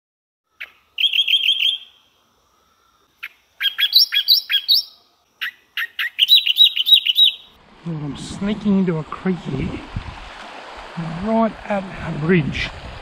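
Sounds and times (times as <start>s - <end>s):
songbird chirping: 0.5s - 9.4s.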